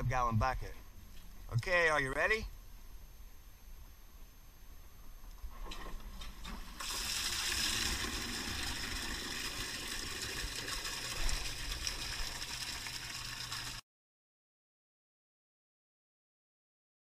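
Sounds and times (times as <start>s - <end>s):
low pump hum: 0.0s - 13.8s
water gushing into plastic bucket: 6.2s - 13.8s.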